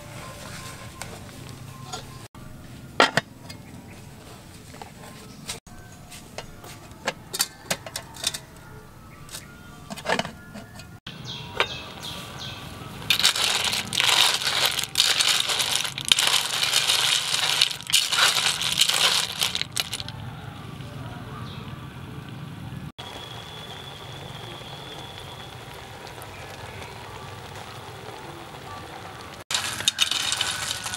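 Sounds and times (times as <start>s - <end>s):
snail shells rattling in pot: 13.1s - 20.2s, 29.5s - 30.9s
pot simmering hiss: 23.0s - 30.9s.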